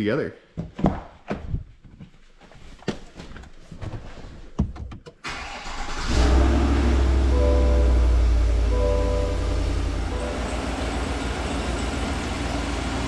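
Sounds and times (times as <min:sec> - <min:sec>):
truck engine rumbling: 0:05.3 - 0:13.0
music with held notes: 0:06.6 - 0:11.2.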